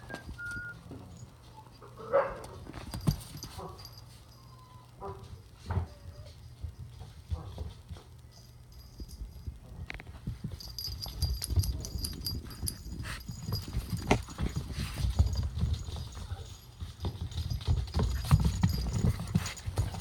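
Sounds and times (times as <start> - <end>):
collar bell jingling: 2.2 - 5.0, 8.3 - 20.0
puppy claws pattering on wood floor: 5.0 - 20.0.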